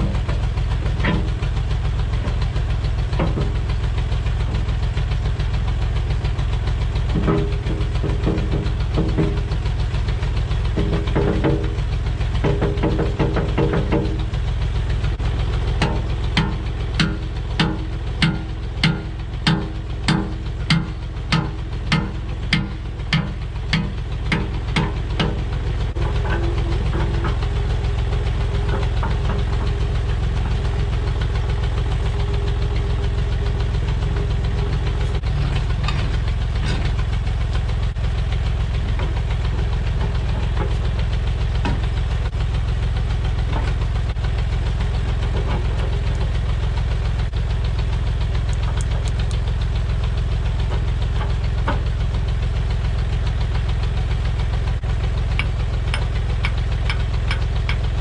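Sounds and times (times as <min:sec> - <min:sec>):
metallic clanks: 0:00.0 - 0:03.7, 0:15.7 - 0:38.1
backhoe engine clattering: 0:00.0 - 0:58.0.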